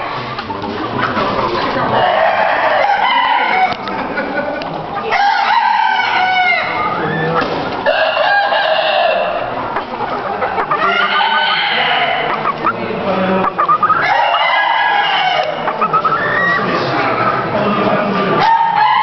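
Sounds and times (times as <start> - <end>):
hens clucking: 0.0 - 19.0
roosters crowing: 1.8 - 4.3, 5.0 - 17.2, 18.4 - 19.0.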